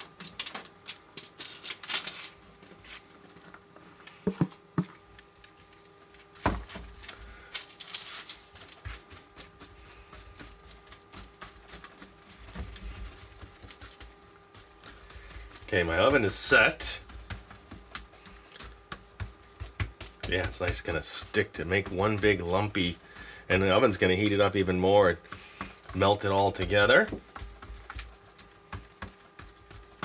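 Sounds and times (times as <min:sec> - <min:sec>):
popcorn clicking and rustling: 0:00.0 - 0:04.4, 0:05.0 - 0:30.0
knock on sheet pan: 0:04.3 - 0:04.9.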